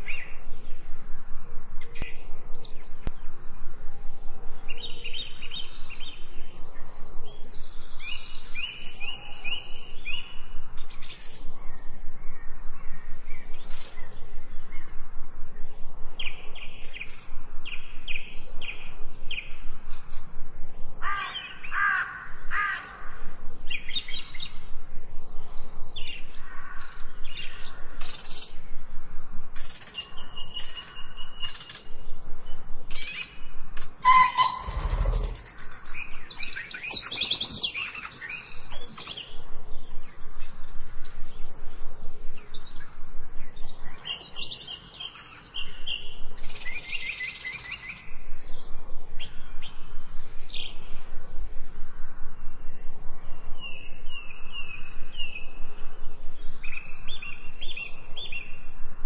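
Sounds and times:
birds singing and chirping: 0:00.0 - 0:58.8
low bird warbling: 0:34.0 - 0:36.6.

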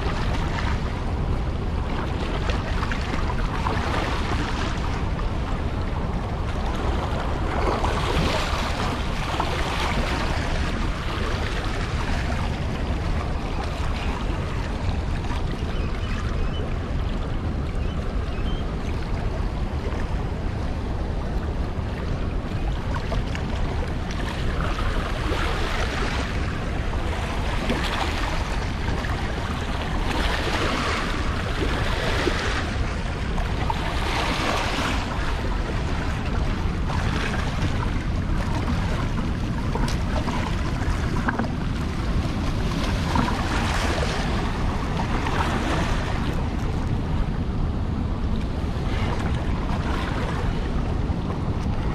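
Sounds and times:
wind buffeting microphone: 0:00.0 - 0:51.9
water rushing from dam spillway: 0:18.8 - 0:51.9.

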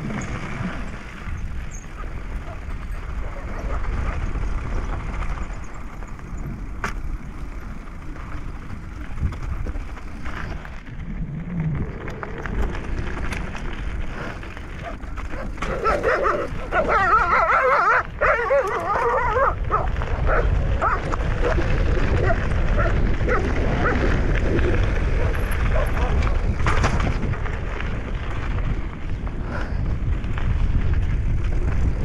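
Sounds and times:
steady low rumble: 0:00.0 - 0:32.0.

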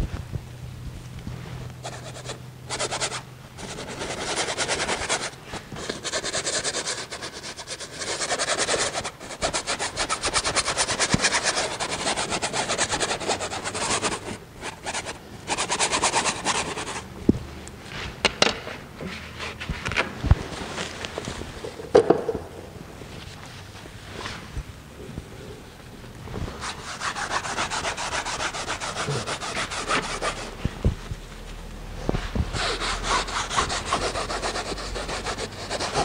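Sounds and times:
paintbrush scrubbing on canvas: 0:01.8 - 0:17.0, 0:26.5 - 0:30.8, 0:32.5 - 0:36.0.

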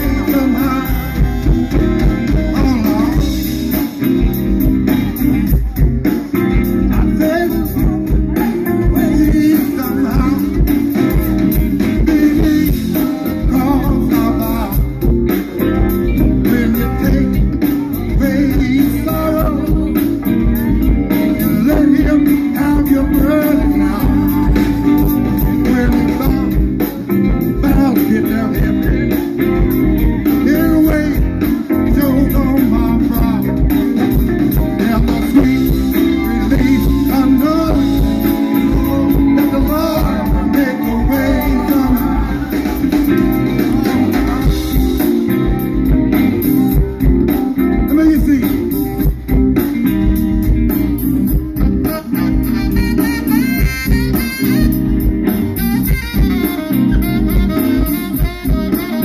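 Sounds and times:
person singing: 0:00.0 - 0:48.9
live gospel blues band: 0:00.0 - 0:59.0.

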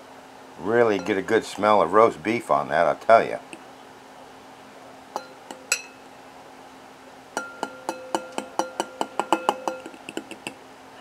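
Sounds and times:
utensil clinking ceramic bowl: 0:01.0 - 0:01.3, 0:05.2 - 0:06.0, 0:07.4 - 0:10.6.

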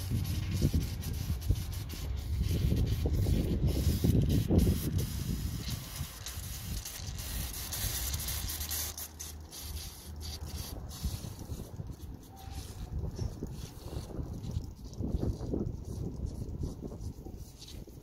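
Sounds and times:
coolant hissing from tank cap: 0:01.0 - 0:10.9.

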